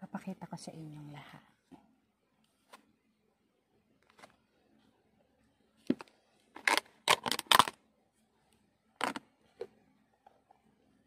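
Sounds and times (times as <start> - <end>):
plastic tub crackling: 5.9 - 7.8, 9.0 - 9.3.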